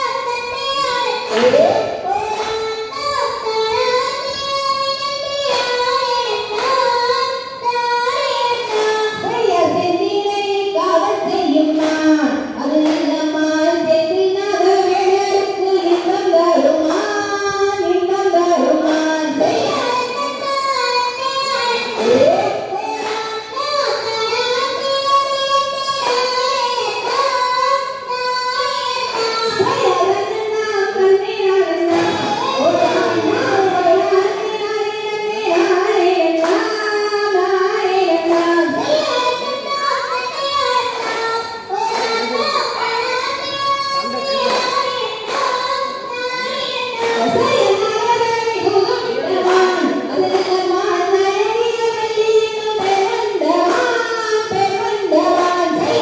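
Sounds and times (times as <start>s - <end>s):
high voice singing folk song: 28.0s - 43.4s
sharp beat: 31.6s - 34.5s.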